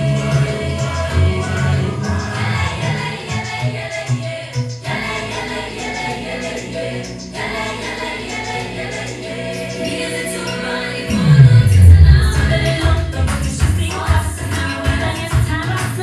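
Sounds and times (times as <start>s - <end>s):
choral music: 0.0s - 15.4s
heavy bass: 11.1s - 13.6s.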